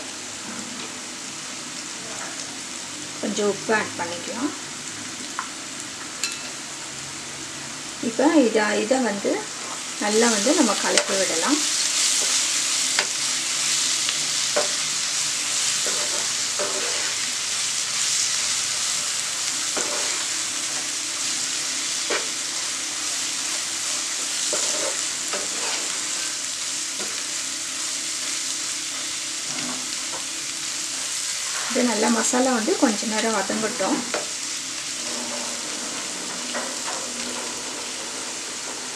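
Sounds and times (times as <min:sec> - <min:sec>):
onions sizzling in hot oil: 0:00.0 - 0:38.9
spatula scraping and tapping pan: 0:15.8 - 0:17.1.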